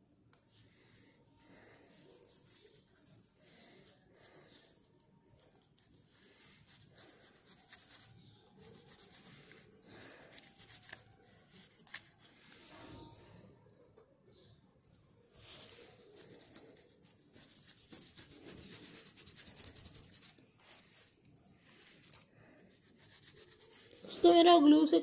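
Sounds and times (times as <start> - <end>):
paper rubbing and rustling: 5.8 - 13.0, 15.3 - 24.2.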